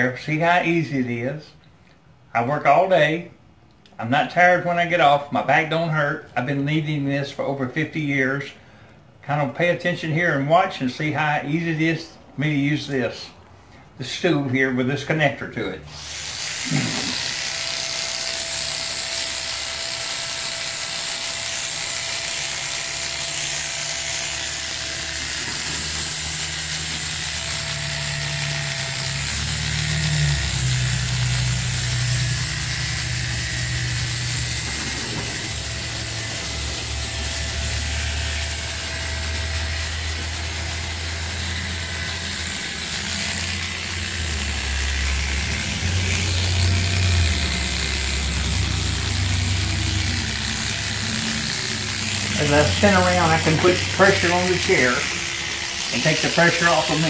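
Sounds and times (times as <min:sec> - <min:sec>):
hair clippers buzzing: 0:15.9 - 0:57.0.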